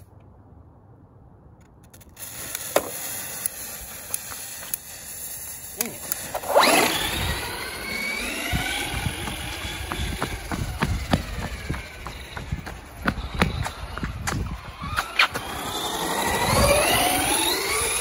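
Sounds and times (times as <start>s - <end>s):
fuse hissing and crackling: 2.2s - 6.3s
tyres rumbling on wet pavement: 2.2s - 18.0s
electric motor whining: 5.7s - 18.0s.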